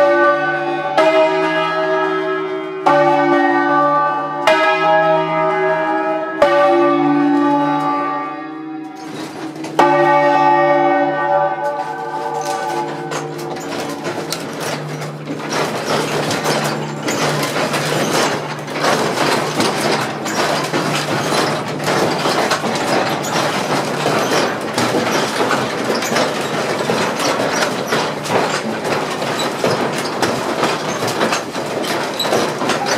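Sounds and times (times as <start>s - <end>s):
church bells clanging: 0.0s - 32.9s.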